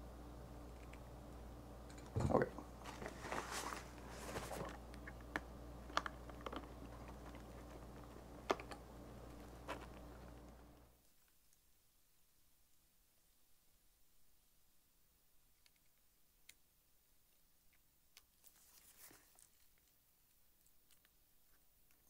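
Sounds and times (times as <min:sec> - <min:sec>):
fabric bag rustling: 0:02.8 - 0:04.8, 0:09.3 - 0:10.5.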